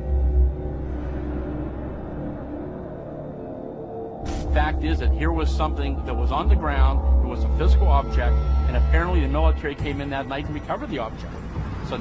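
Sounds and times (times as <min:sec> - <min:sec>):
held tones of soundtrack music: 0:00.0 - 0:12.0
deep bass drone: 0:04.2 - 0:12.0.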